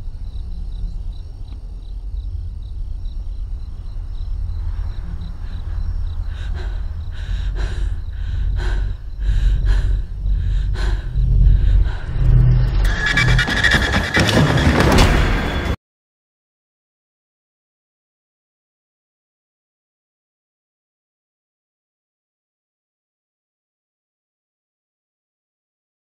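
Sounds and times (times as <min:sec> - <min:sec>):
crickets chirping: 0:00.0 - 0:14.2
deep rumbling drone: 0:00.0 - 0:15.7.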